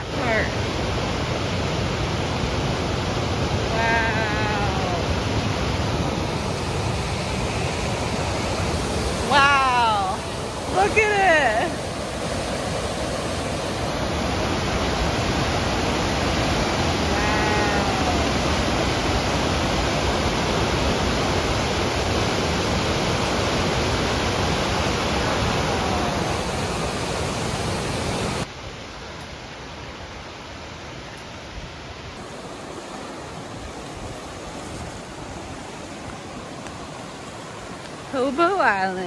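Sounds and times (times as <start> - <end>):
river rushing through rapids: 0.0 - 39.0.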